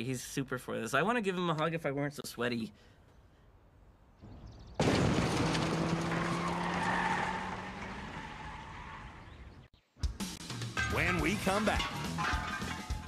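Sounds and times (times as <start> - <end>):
car tyres skidding: 4.8 - 9.6.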